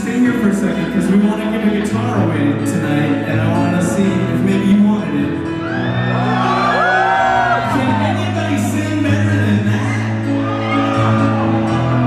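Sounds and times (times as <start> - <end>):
person singing: 0.0 - 5.5.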